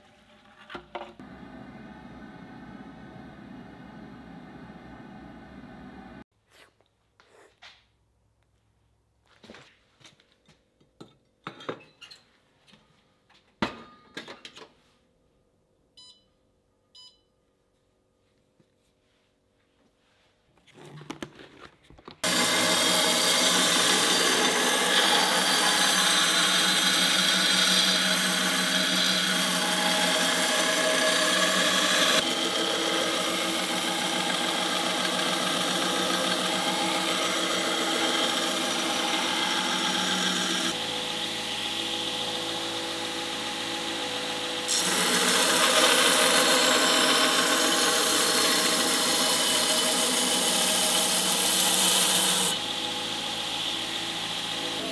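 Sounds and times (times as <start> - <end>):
motor hum: 1.2 - 6.2.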